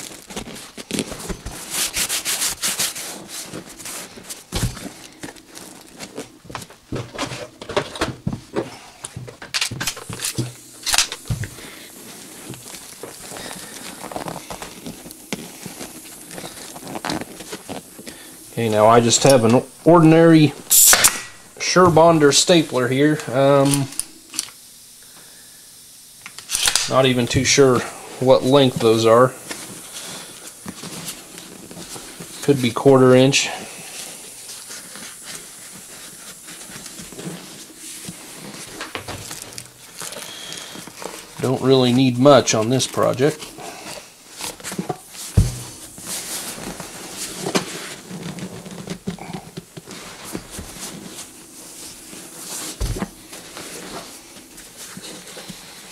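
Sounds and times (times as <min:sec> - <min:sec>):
vinyl and plastic sheeting crinkling: 0:00.0 - 0:20.7, 0:21.4 - 0:24.3, 0:26.9 - 0:55.9.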